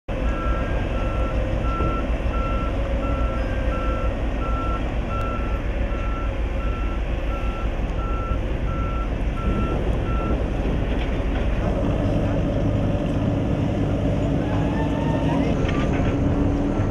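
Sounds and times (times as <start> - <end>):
diesel engines running: 0.1 - 16.9
reversing alarm beeping: 0.2 - 10.5.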